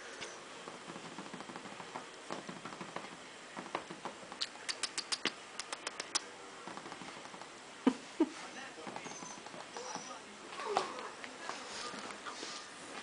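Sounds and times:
puppy scrabbling and clicking: 0.7s - 7.5s.

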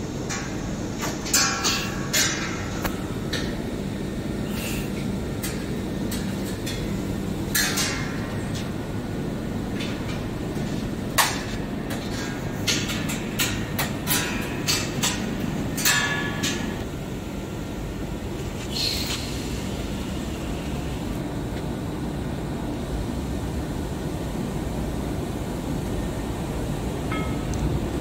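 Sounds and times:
workshop machinery humming: 0.0s - 28.0s.

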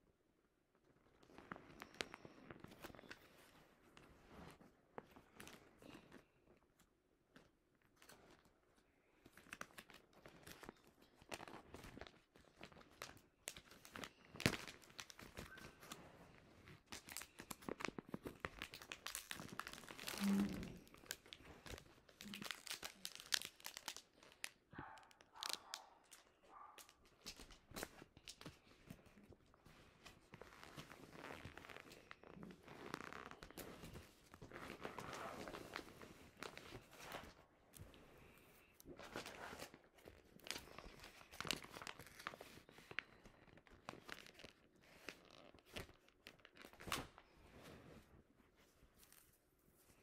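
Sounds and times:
plastic bag crinkling: 16.7s - 28.6s, 39.2s - 46.8s.

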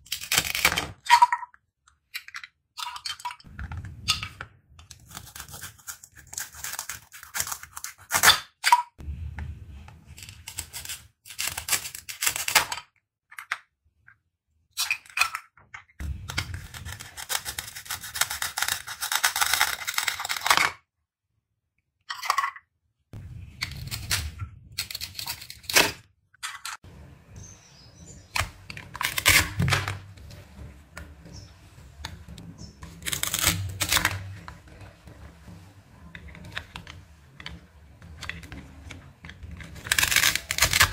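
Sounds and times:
plastic pieces clattering: 38.2s - 40.9s.

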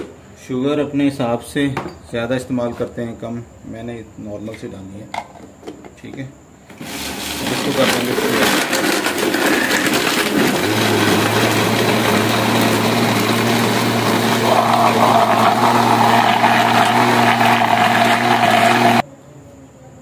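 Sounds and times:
blender running: 6.7s - 19.0s
ice clattering in blender: 6.7s - 19.0s.

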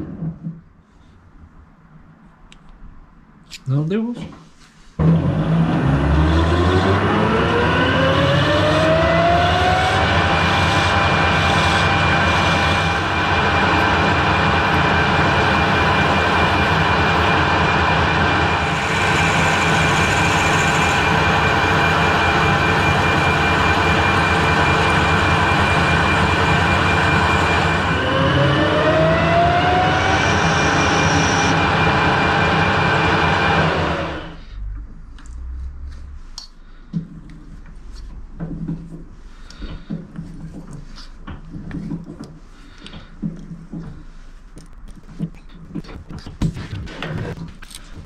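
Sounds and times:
lathe motor whining: 5.0s - 34.4s
drill cutting into steel: 18.5s - 31.6s.

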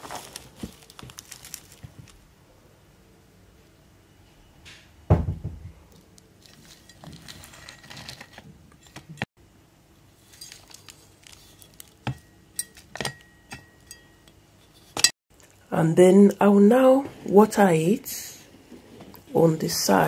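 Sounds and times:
heavy thump: 5.1s - 5.7s
soil pouring and scraping: 6.4s - 8.5s.

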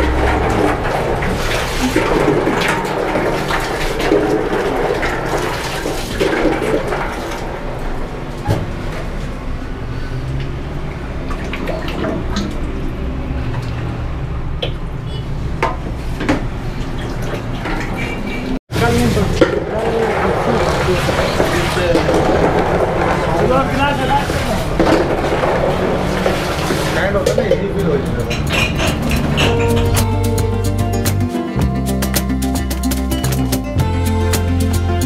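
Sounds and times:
liquid pouring and sloshing: 0.0s - 14.9s, 15.5s - 29.9s.

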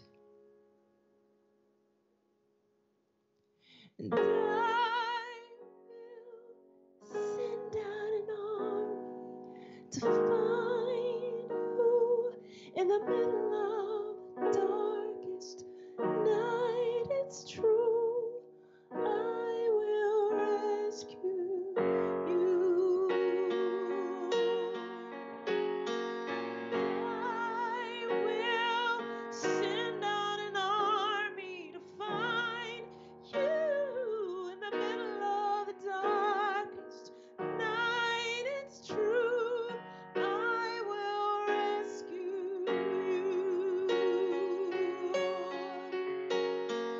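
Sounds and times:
woman singing with vibrato: 7.2s - 9.0s, 10.0s - 18.4s, 19.0s - 25.2s, 26.8s - 46.2s.

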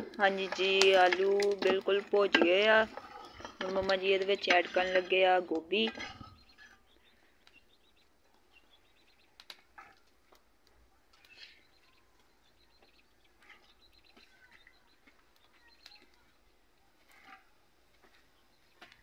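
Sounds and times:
faint bird chirps: 11.1s - 16.4s.

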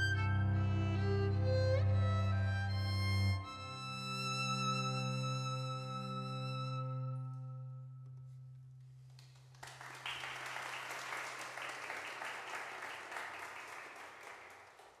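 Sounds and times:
violin and cello low note: 0.0s - 7.8s
audience applauding: 9.2s - 15.0s.

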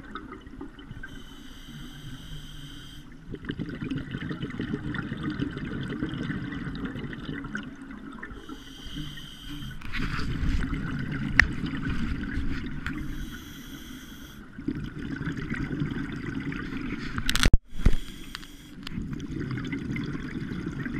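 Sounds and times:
diver inhaling through regulator: 1.1s - 3.2s, 8.4s - 10.2s, 13.0s - 14.5s, 17.7s - 18.8s.

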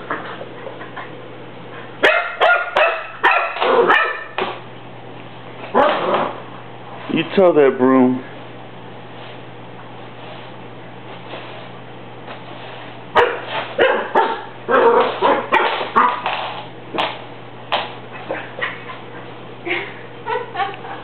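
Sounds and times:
puppy barking and yipping: 2.0s - 4.4s, 13.2s - 16.2s.

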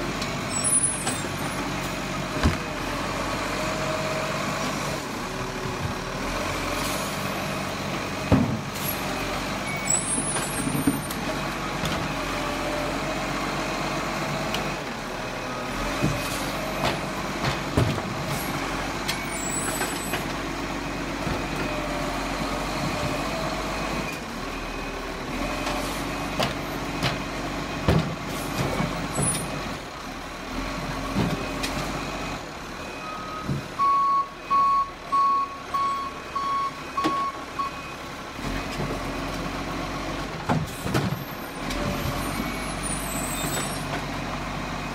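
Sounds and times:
clunks and knocks: 2.3s - 2.8s, 8.2s - 8.9s, 10.0s - 12.2s, 15.9s - 20.4s, 25.6s - 29.6s, 30.8s - 32.0s, 33.4s - 33.9s, 40.4s - 42.6s.

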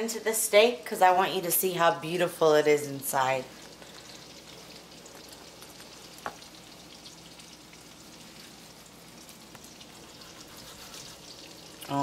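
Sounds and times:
mushrooms sizzling in a skillet: 0.6s - 12.0s.

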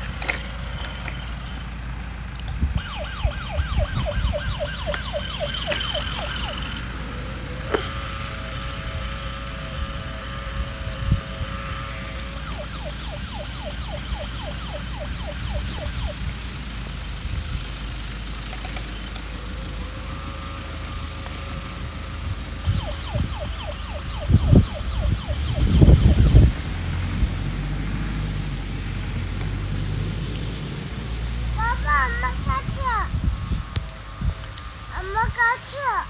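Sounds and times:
toy siren wailing and chirping: 2.7s - 16.3s, 19.5s - 26.6s, 31.6s - 36.0s.

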